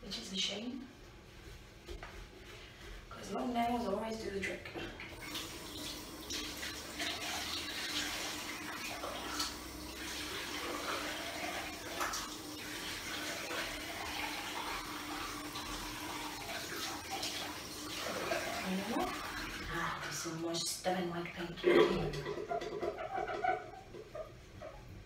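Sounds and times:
hands rubbing and rinsing: 0:01.1 - 0:04.1, 0:22.1 - 0:24.8
tap water running into basin: 0:04.2 - 0:20.5, 0:21.6 - 0:24.3.

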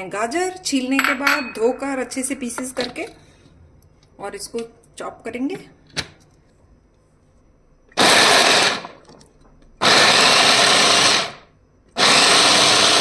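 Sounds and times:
electric chopper motor running: 0:12.0 - 0:13.0.

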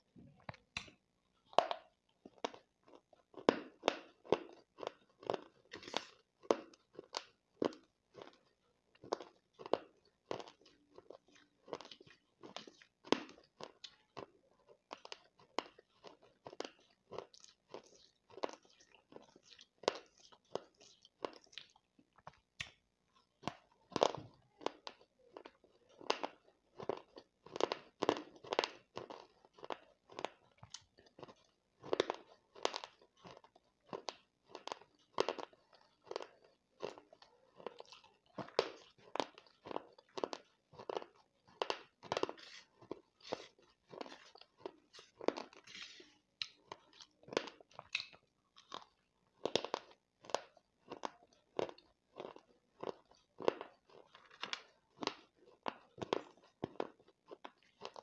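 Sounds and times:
person chewing dry crunchy clay: 0:00.0 - 0:58.0.

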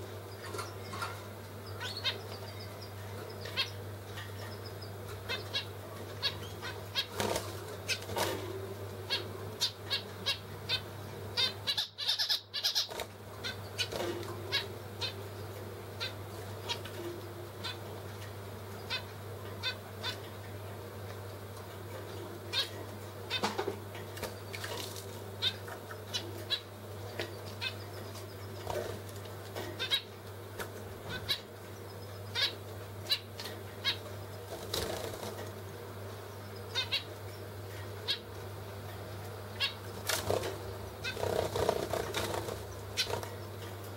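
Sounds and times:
finches giving nasal calls: 0:00.4 - 0:03.8, 0:09.1 - 0:15.3, 0:25.4 - 0:29.0, 0:29.8 - 0:30.1, 0:31.0 - 0:35.3, 0:36.5 - 0:37.2, 0:39.5 - 0:43.3
wing flapping: 0:34.5 - 0:35.6, 0:40.0 - 0:43.4.

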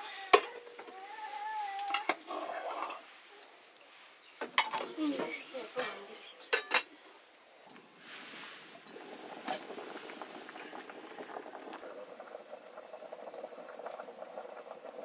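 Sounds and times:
food sizzling in a pan: 0:08.0 - 0:15.0.

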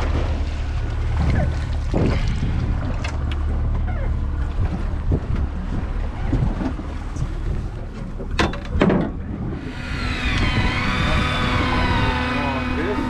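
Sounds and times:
low rumble: 0:00.0 - 0:13.0
water around boat: 0:00.0 - 0:13.0
wind on microphone: 0:01.1 - 0:03.7, 0:04.4 - 0:07.9, 0:09.0 - 0:13.0
wavering siren-like tone: 0:09.6 - 0:13.0.

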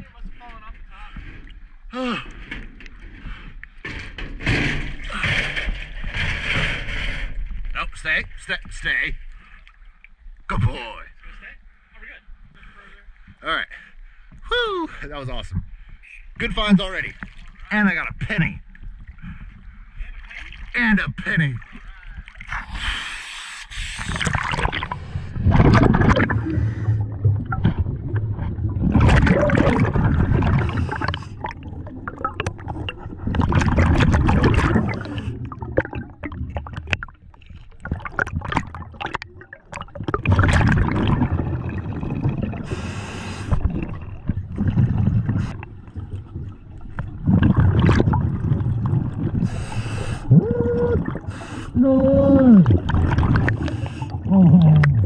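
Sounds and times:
exhaled bubbles gurgling underwater: 0:24.0 - 0:55.0.

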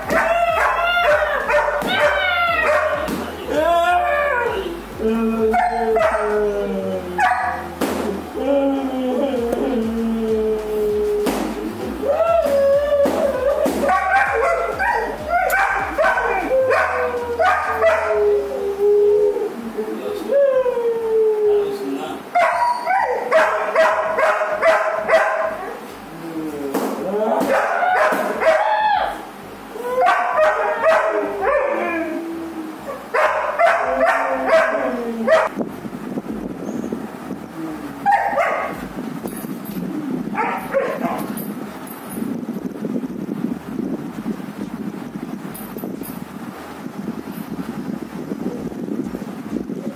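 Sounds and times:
dog barking and yelping: 0:00.0 - 0:03.1, 0:05.5 - 0:06.4, 0:07.1 - 0:07.8, 0:13.0 - 0:18.5, 0:22.3 - 0:25.8, 0:27.5 - 0:29.1, 0:29.9 - 0:35.5, 0:38.0 - 0:38.8, 0:40.3 - 0:41.4
puppy whining and yipping: 0:00.0 - 0:03.1, 0:12.3 - 0:18.3, 0:22.4 - 0:23.3
dog whining: 0:00.0 - 0:35.5.

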